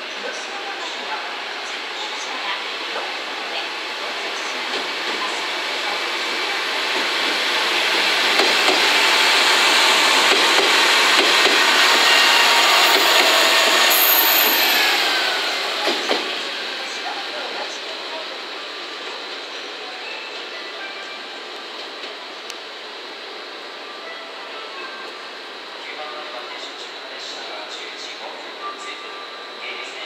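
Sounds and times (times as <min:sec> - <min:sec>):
train wheels rolling: 0:06.8 - 0:16.7
high wheel squeals: 0:11.9 - 0:15.5.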